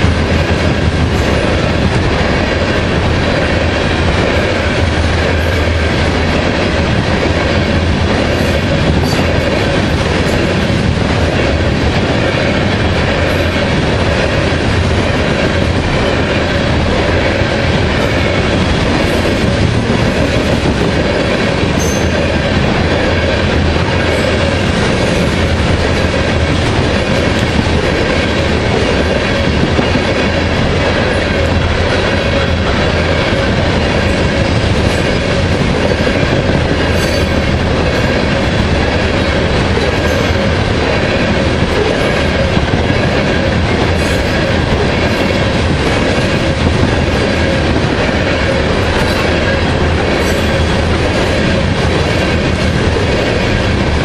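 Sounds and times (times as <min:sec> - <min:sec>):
train wheels rumbling and clattering: 0:00.0 - 0:54.0
high wheel squeals: 0:21.8 - 0:22.2.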